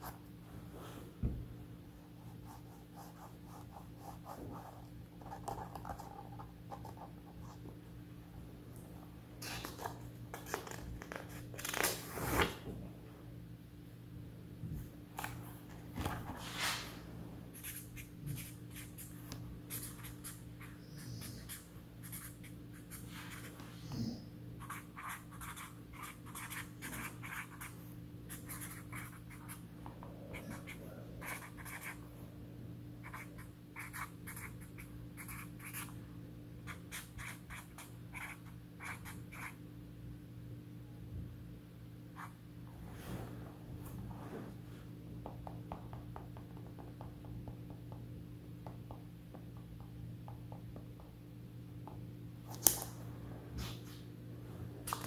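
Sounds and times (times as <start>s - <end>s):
faint low hum: 0.0s - 55.0s
marker scratching on paper: 17.6s - 23.6s, 24.6s - 29.6s, 30.3s - 32.0s, 33.0s - 35.9s, 36.7s - 39.6s.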